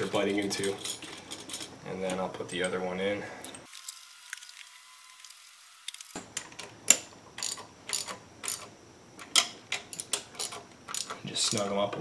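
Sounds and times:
hand ratchet clicking: 0:06.9 - 0:08.7, 0:09.9 - 0:11.7.

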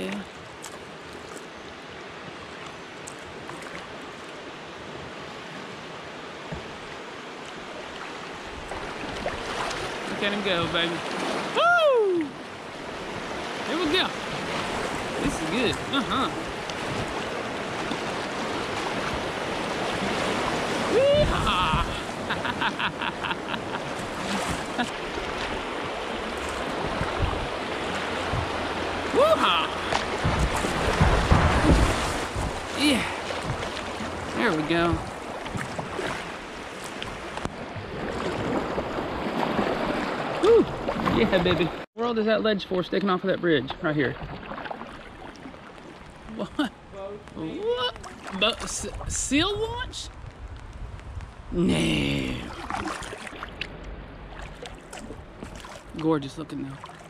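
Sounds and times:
river water over rapids: 0:00.0 - 0:42.6, 0:44.1 - 0:49.8, 0:51.6 - 0:57.0
river rapids rushing: 0:13.4 - 0:36.6.

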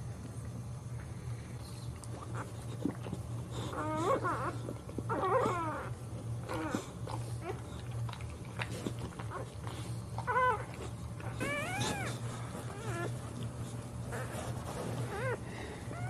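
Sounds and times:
puppy crying in squeaks: 0:11.3 - 0:13.1.

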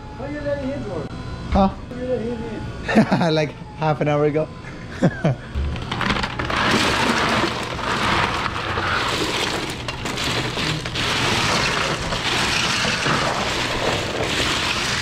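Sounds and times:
ice cubes clattering: 0:05.7 - 0:15.0.

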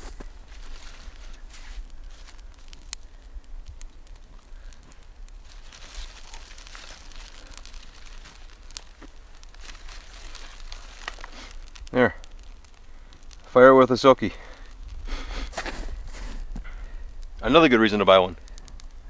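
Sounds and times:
fire crackling: 0:00.0 - 0:19.0
twigs and grass crinkling: 0:00.0 - 0:19.0.

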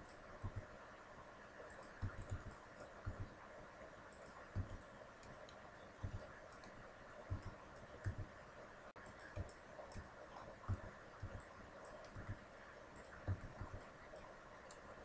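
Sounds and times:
steady low hiss: 0:00.0 - 0:15.0
mouse and keyboard clicks: 0:01.7 - 0:03.3, 0:04.1 - 0:08.3, 0:09.0 - 0:14.9.

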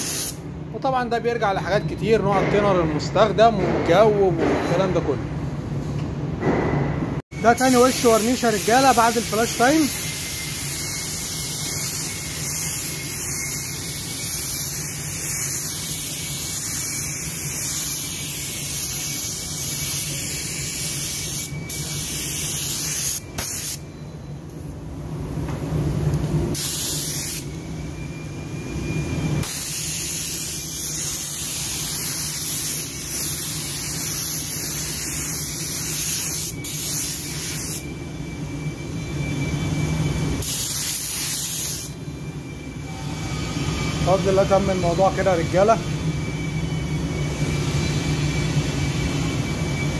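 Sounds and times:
spray gun hissing: 0:00.0 - 0:00.4, 0:07.6 - 0:23.8, 0:26.6 - 0:27.5, 0:29.4 - 0:37.8, 0:40.4 - 0:42.0.

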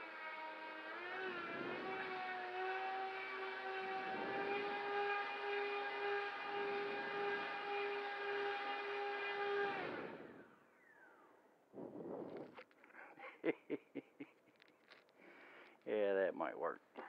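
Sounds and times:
model airboat propeller motor whirring: 0:00.0 - 0:11.1.

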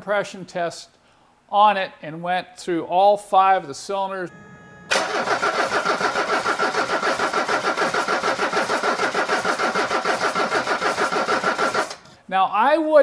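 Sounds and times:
starter motor whine: 0:04.3 - 0:12.1
diesel engine cranking chug: 0:04.9 - 0:12.1.

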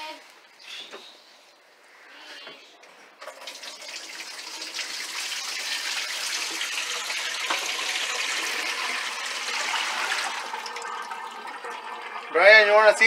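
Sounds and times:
water running: 0:03.2 - 0:13.0.

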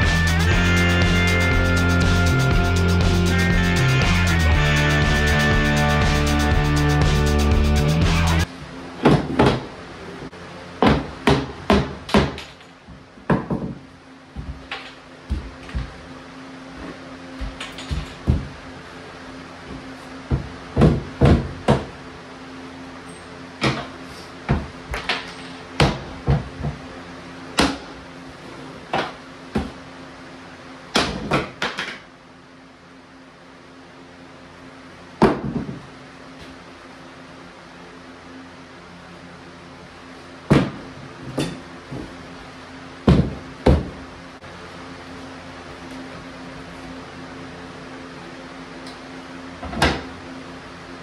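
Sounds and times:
hammer striking wooden cabinet: 0:10.8 - 0:12.4, 0:20.3 - 0:21.9
hammer knocking on wood: 0:20.3 - 0:21.9.

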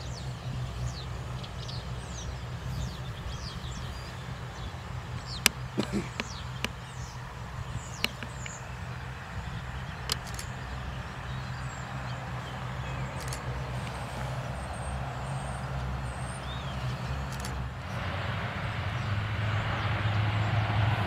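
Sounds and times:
turboprop propeller drone: 0:00.0 - 0:21.0.

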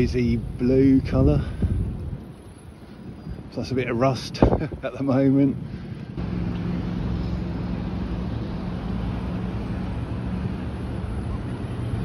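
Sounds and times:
wind on microphone: 0:00.0 - 0:03.7
bicycle rolling noise: 0:00.0 - 0:12.0
traffic road noise: 0:00.0 - 0:12.0
low hum: 0:05.7 - 0:12.0.

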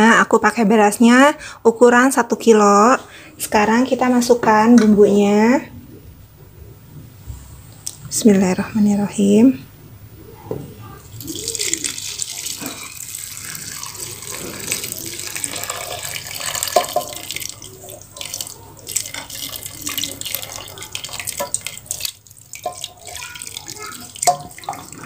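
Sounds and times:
liquid pouring into metal pot: 0:11.1 - 0:25.0.

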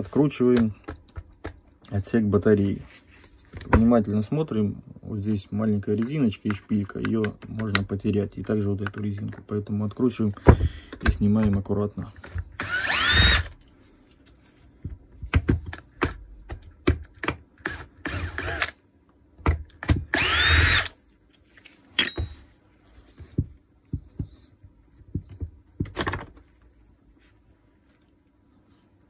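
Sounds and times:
sharp clicks of plastic parts: 0:06.0 - 0:09.5
electric screwdriver whining: 0:12.6 - 0:13.6, 0:17.6 - 0:18.8, 0:20.1 - 0:21.0.

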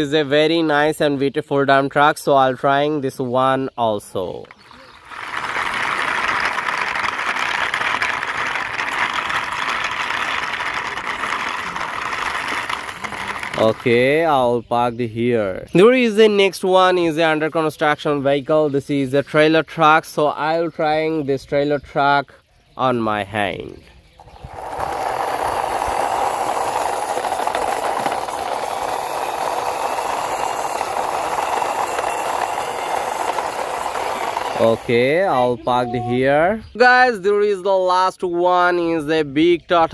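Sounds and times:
toy truck wheels rolling on stone: 0:03.8 - 0:14.7, 0:15.7 - 0:18.1, 0:24.1 - 0:35.8.

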